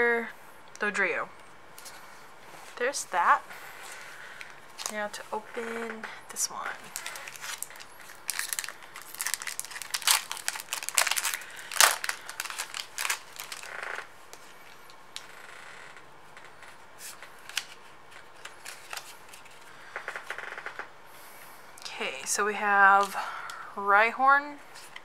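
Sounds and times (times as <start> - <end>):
foil wrapper crinkling: 3.9 - 5.1, 6.8 - 15.3, 17.0 - 19.7.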